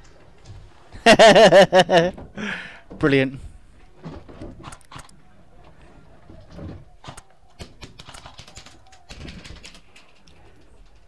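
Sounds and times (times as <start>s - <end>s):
sharp clicks: 4.6s - 5.2s, 7.0s - 11.0s
dove cooing softly: 6.0s - 11.0s.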